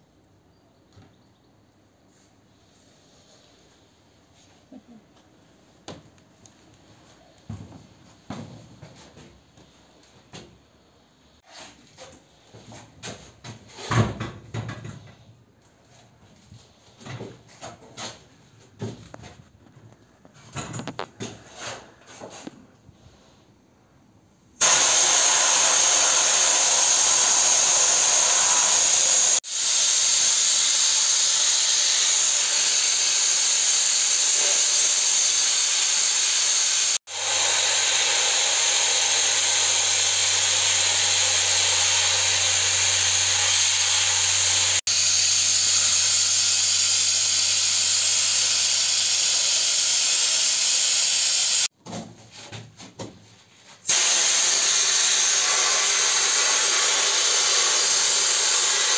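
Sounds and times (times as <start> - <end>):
sandblasting gun hissing: 24.6 - 51.7, 53.9 - 58.9.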